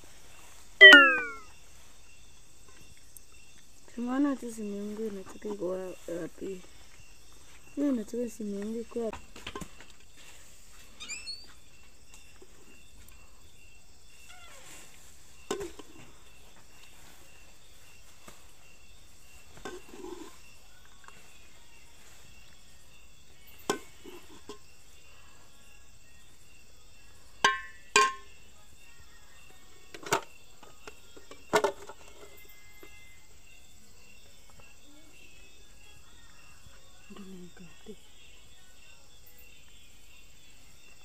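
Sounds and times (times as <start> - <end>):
insects chirping: 0.0 - 41.0
metal ladle knocking on pot: 27.4 - 28.2.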